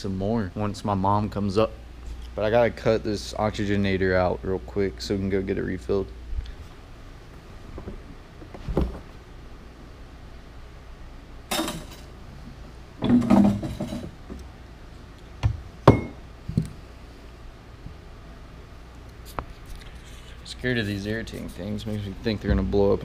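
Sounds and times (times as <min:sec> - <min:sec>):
knocks and clunks of hand work: 0:13.0 - 0:14.4.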